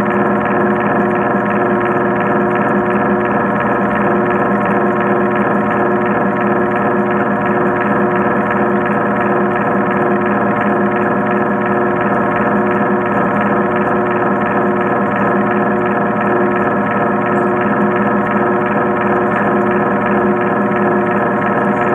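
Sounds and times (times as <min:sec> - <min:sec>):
pool pump humming underwater: 0:00.0 - 0:21.9.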